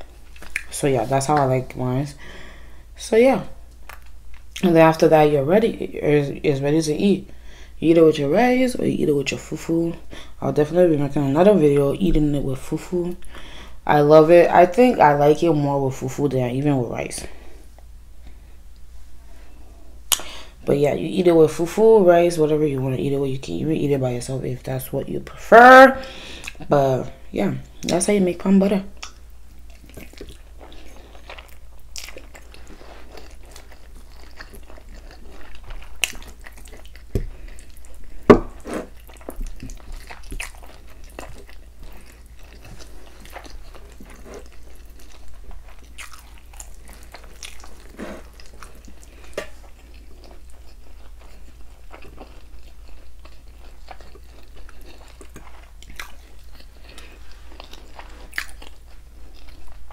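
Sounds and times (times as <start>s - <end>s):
wet chewing and smacking: 0.1s - 1.5s, 29.0s - 59.9s.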